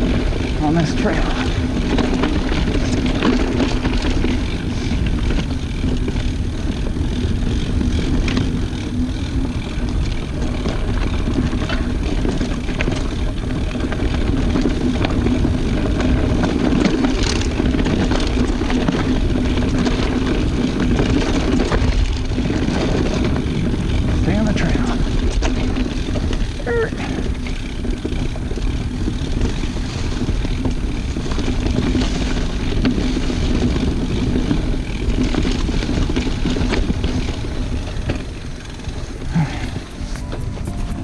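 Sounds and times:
bike clicks and rattles: 0.0 - 41.0
bike tyres rolling on dirt: 0.0 - 41.0
steady low hum: 34.0 - 41.0.

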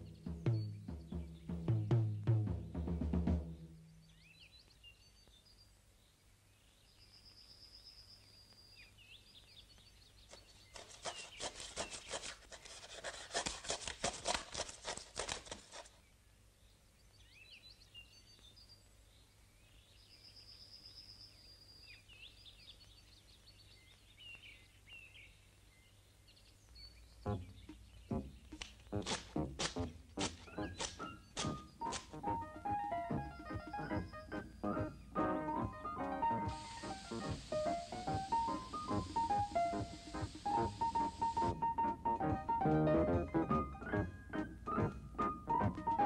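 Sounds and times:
rapid run of clicks: 10.7 - 15.9
bird chirps and whistles: 30.4 - 32.0, 33.6 - 35.2.

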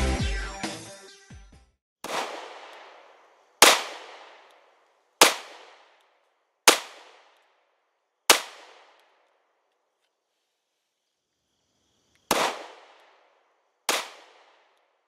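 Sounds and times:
gunshots with echo: 2.0 - 4.6, 5.2 - 6.0, 6.7 - 7.4, 8.3 - 9.0, 12.3 - 13.2, 13.9 - 14.7.

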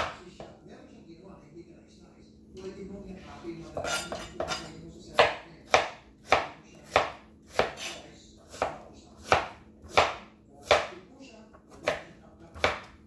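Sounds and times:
knife chopping on cutting board: 0.0 - 0.5, 3.7 - 13.0.

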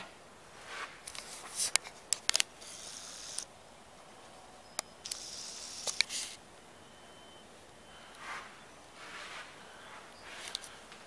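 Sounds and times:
camera handling noise: 1.0 - 3.5, 5.0 - 6.4
sharp clicks: 1.1 - 3.6, 4.7 - 6.4.

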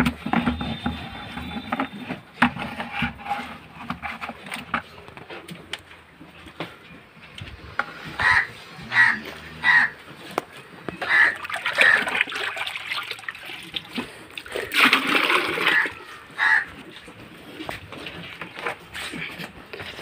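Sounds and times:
crows cawing: 8.1 - 10.0, 11.0 - 12.1, 15.6 - 16.8
wet mash splashing: 11.1 - 16.2.

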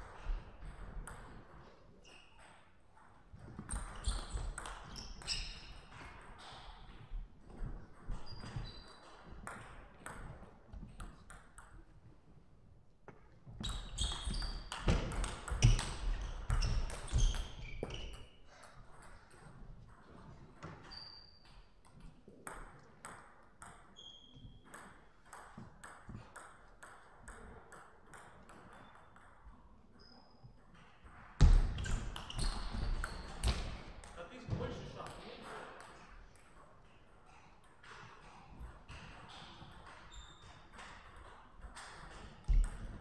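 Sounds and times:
shoe squeaks on floor: 2.0 - 2.6, 3.7 - 6.9, 8.0 - 9.5, 13.5 - 18.8, 20.1 - 21.8, 23.8 - 24.7, 29.9 - 30.6, 31.4 - 35.0, 39.1 - 41.0.

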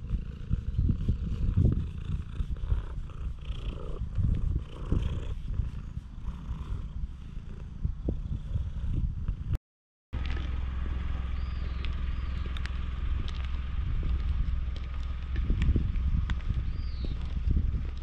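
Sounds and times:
cat purring: 0.0 - 9.6.

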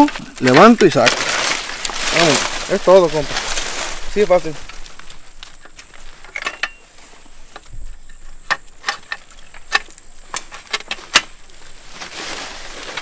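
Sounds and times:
rustling hiss: 0.0 - 13.0
metal frame clicks and knocks: 6.2 - 6.8, 7.6 - 11.4.

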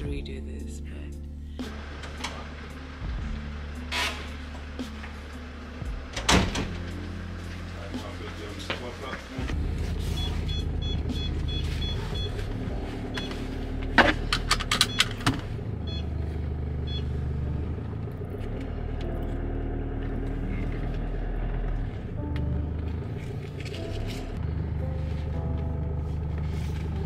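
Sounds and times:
car engine hum inside cabin: 1.6 - 6.2, 9.3 - 27.0
high beeps: 10.1 - 12.4, 15.8 - 16.1, 16.8 - 17.1.

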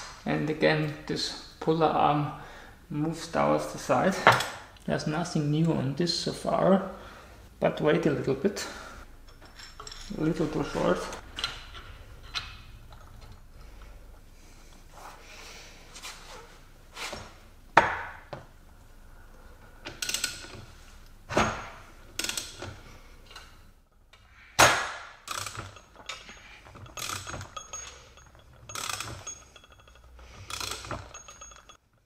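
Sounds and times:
metal tools clinking and knocking: 9.2 - 13.9, 25.3 - 32.0.

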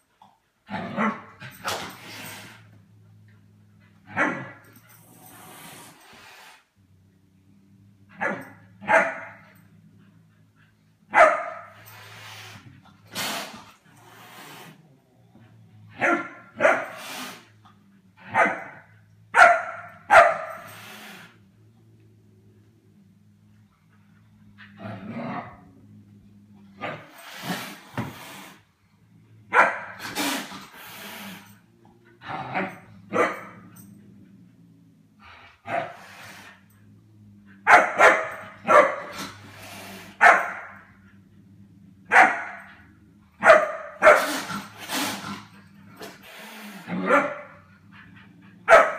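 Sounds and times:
puppy barking: 8.2 - 9.4, 11.1 - 11.8, 16.0 - 17.0, 18.3 - 18.8, 19.4 - 20.6, 29.5 - 30.0, 37.6 - 39.1, 40.2 - 40.8, 42.1 - 42.7, 43.4 - 44.3, 47.1 - 47.6, 48.6 - 48.9.

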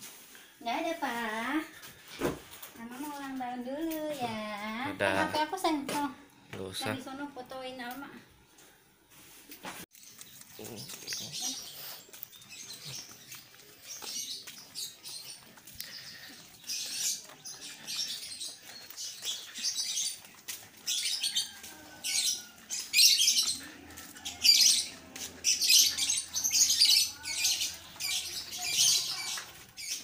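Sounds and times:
footsteps scuffing on concrete: 12.0 - 30.0.

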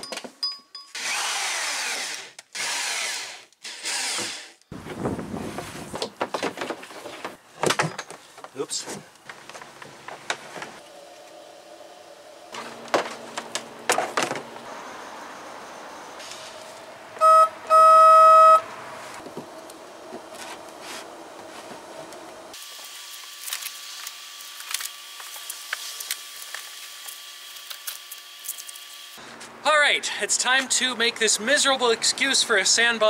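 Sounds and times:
electric horn beeps: 17.2 - 18.7.

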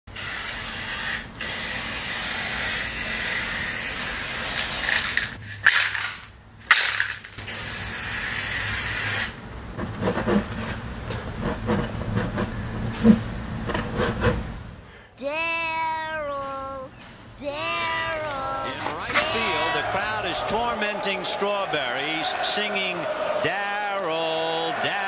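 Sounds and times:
spray paint can hissing: 0.1 - 5.4, 7.0 - 9.4.

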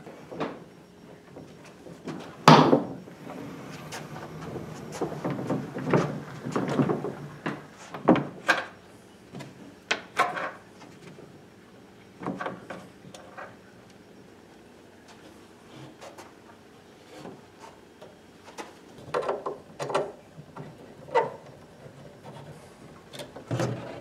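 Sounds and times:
wood scraping: 3.2 - 8.2.

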